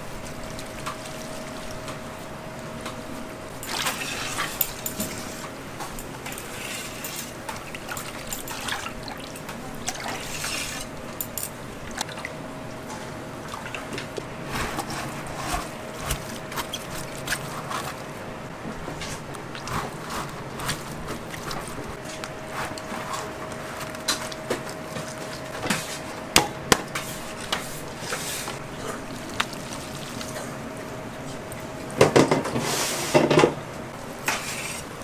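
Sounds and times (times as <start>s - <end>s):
water sloshing in a metal basin: 3.5s - 18.0s, 26.9s - 31.6s
wet clicks and drips: 29.0s - 30.5s.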